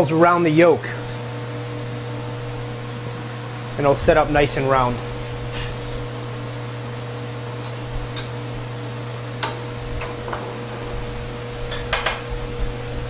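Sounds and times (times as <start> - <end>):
fan hum: 0.0 - 13.0
utensils clinking against cookware: 7.6 - 8.4, 11.7 - 12.3.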